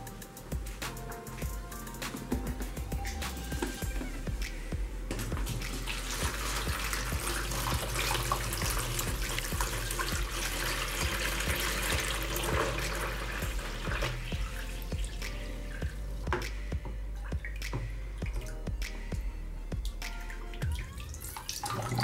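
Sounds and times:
water pouring into a basin: 5.2s - 15.2s, 20.6s - 22.0s.

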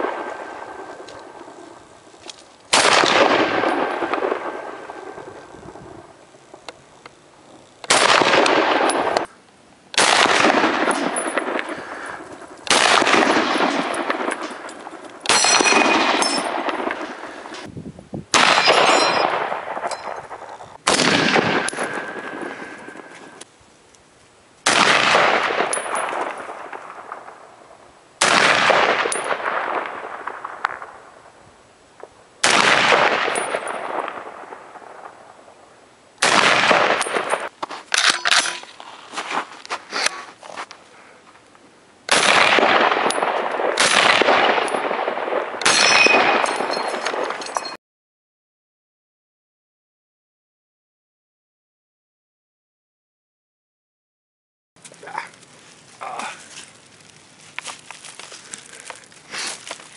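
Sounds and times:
rifle shots with echo: 0.0s - 1.9s, 2.7s - 6.0s, 7.8s - 9.3s, 10.0s - 17.7s, 18.3s - 23.4s, 24.6s - 31.2s, 32.4s - 35.4s, 36.2s - 38.6s, 42.1s - 47.4s.

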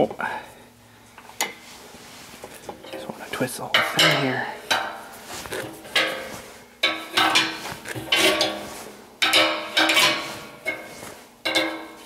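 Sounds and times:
wrench clanking on pipe fittings: 3.8s - 4.9s, 5.9s - 12.0s.

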